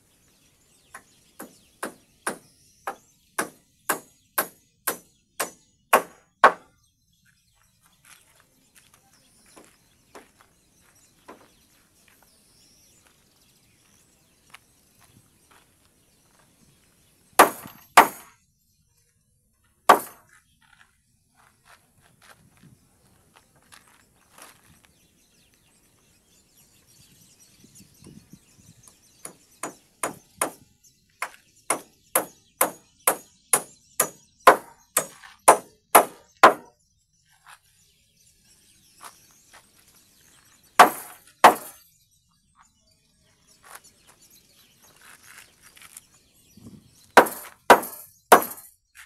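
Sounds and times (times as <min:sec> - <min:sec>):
hammer driving nails into timber: 0:01.4 - 0:06.7, 0:17.4 - 0:18.3, 0:19.9 - 0:20.2, 0:29.2 - 0:30.6, 0:31.2 - 0:36.7, 0:40.8 - 0:41.8, 0:47.2 - 0:48.7.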